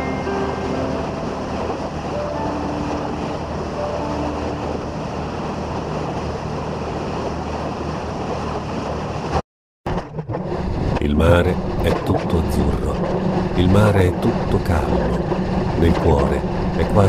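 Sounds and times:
water rushing and spraying: 0.0s - 9.4s.

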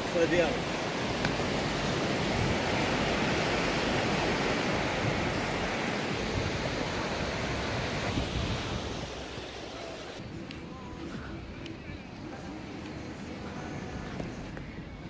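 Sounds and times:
surf washing onto beach: 0.0s - 10.2s.

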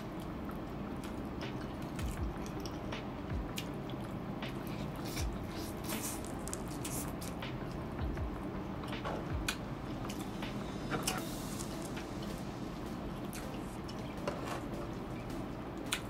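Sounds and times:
wet chewing: 3.5s - 7.4s.

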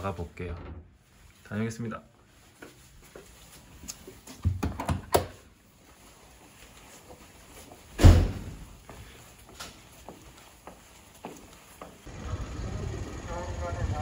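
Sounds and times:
door thudding shut: 8.0s - 8.6s.

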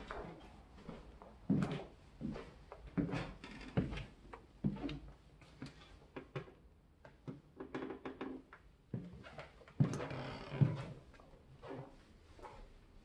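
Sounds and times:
footsteps on hardwood floor: 0.0s - 4.0s, 9.8s - 11.0s.

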